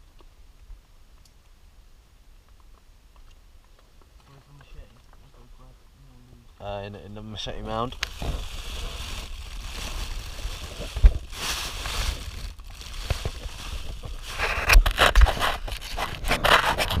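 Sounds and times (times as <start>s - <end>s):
foil and plastic crinkling: 7.3s - 17.0s.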